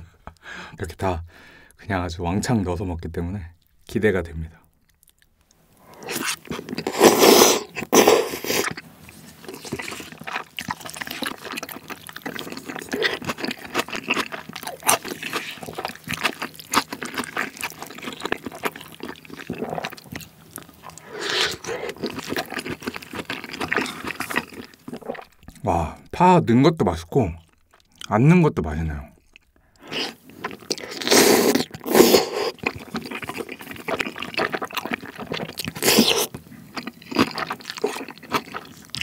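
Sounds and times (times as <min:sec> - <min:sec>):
wet chewing: 0:04.6 - 0:26.1, 0:29.2 - 0:39.0
slurping food: 0:05.9 - 0:11.7, 0:20.8 - 0:25.3, 0:29.8 - 0:38.7.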